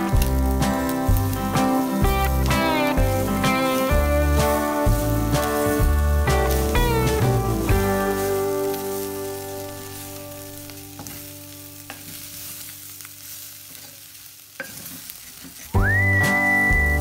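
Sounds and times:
background music: 0.0s - 11.9s, 15.8s - 17.0s
gizzards sizzling in a pot: 0.0s - 17.0s
rising whistle: 15.8s - 17.0s.

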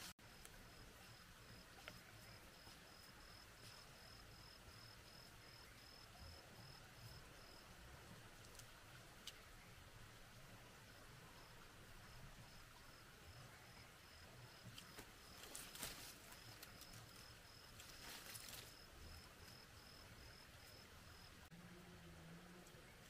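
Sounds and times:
cricket chirping: 0.3s - 7.6s, 12.1s - 21.4s.

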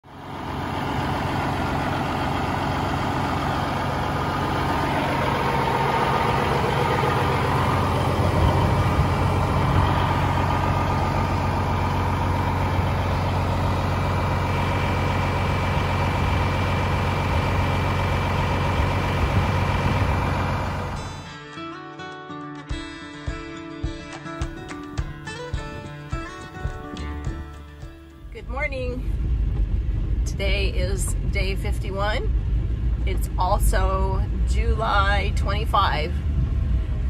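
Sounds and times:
diesel truck engine idling: 0.1s - 21.3s.

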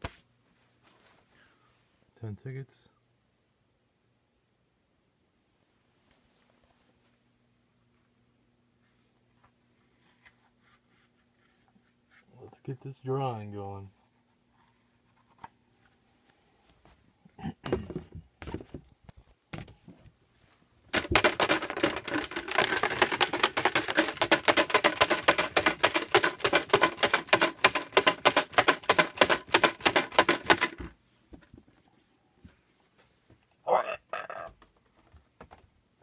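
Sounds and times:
paper tickets rattling in box: 20.9s - 30.9s.

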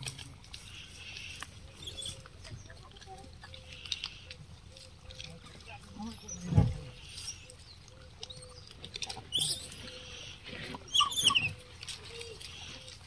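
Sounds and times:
monkeys crunching food: 0.0s - 13.0s
short monkey squeaks: 8.3s - 10.0s, 10.9s - 11.6s
high monkey squeals: 9.2s - 10.2s, 10.9s - 11.6s.

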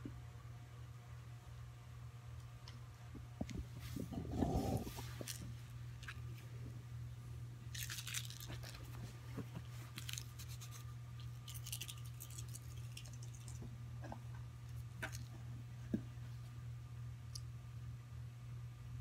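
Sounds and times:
scratchy rustling: 7.8s - 13.5s.

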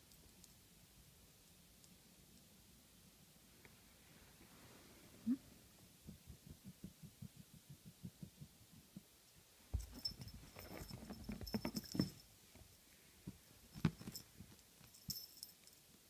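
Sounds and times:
soft even tapping: 5.8s - 14.6s
high tinkling: 9.7s - 12.4s, 13.6s - 15.9s
cat scuffling and pouncing: 9.7s - 12.7s.

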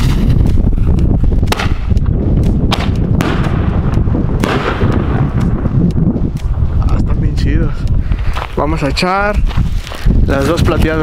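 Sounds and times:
wind rumble on microphone: 0.0s - 11.0s
firework shells banging: 1.4s - 6.6s.

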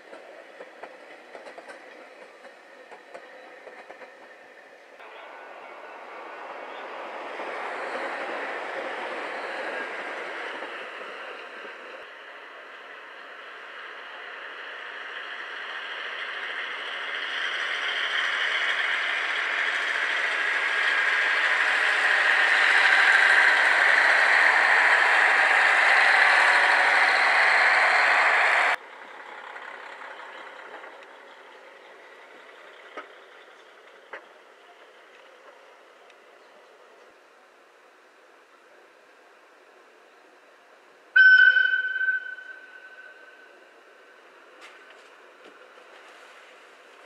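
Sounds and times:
quieter passing train: 0.0s - 47.0s
train passing on rails: 0.0s - 47.0s.

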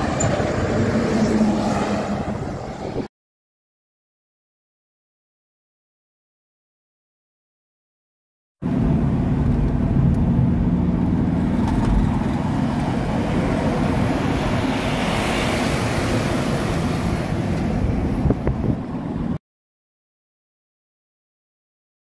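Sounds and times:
car road and wind rumble: 0.0s - 3.1s, 8.6s - 19.4s.

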